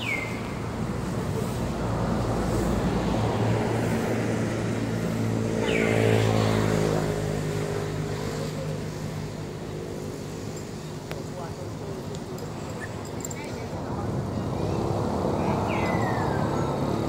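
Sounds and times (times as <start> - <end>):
vehicle engine passing: 0.8 - 10.5.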